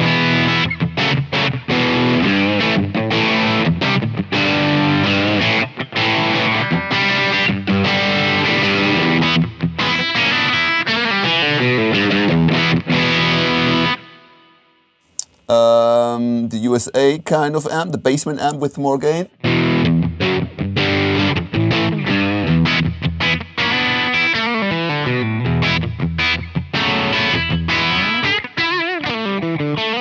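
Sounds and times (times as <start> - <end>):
distorted electric guitar: 0.0 - 16.2, 18.2 - 30.0.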